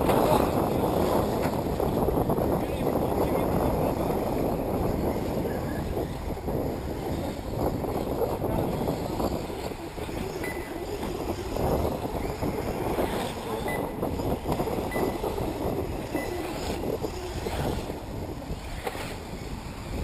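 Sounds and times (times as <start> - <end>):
electric rc buggies running: 0.0 - 20.0
wind rumbling on microphone: 0.0 - 20.0.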